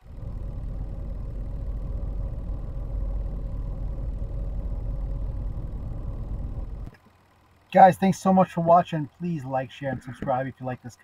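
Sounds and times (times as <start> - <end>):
low rumbling: 0.0 - 7.0
faint hum: 0.0 - 11.0.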